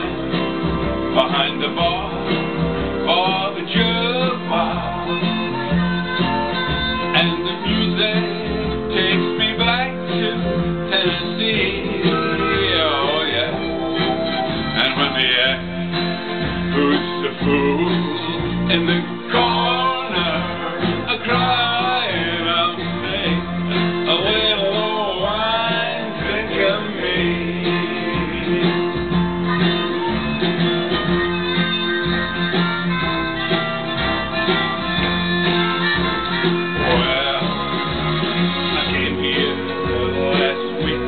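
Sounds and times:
country backing track with guitar: 0.0 - 41.0
man singing into microphone: 1.1 - 2.3, 3.0 - 5.6, 7.0 - 13.6, 14.8 - 15.8, 16.7 - 29.2, 36.7 - 41.0.

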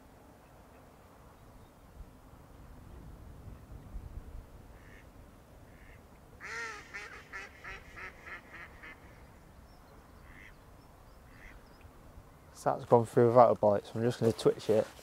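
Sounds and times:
duck quacking: 4.8 - 5.1, 5.7 - 9.2, 10.2 - 10.6, 11.3 - 11.6.

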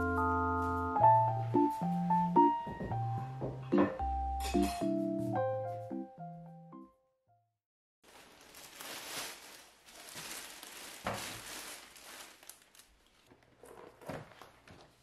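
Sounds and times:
plastic bags rustling: 8.0 - 15.0.

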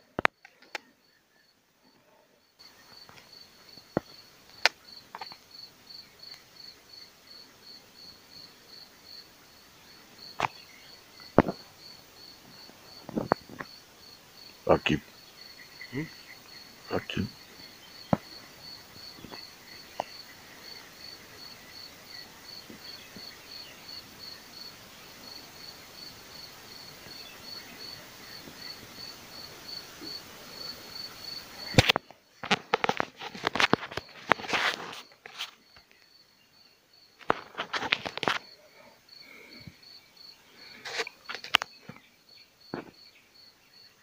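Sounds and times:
cricket chirping: 0.0 - 44.0
low outdoor hiss: 0.0 - 44.0
rustling and knocking: 31.7 - 35.6.

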